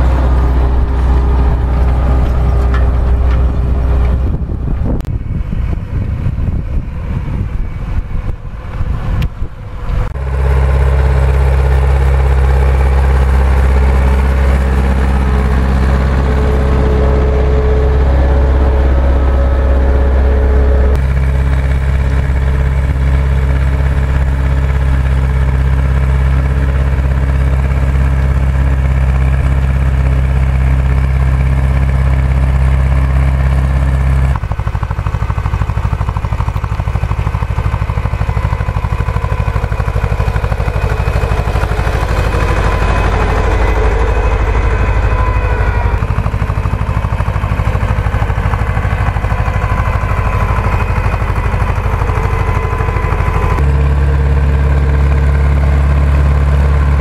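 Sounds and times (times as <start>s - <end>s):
tractor diesel engine droning: 0.0s - 57.0s
wind on microphone: 3.4s - 10.2s.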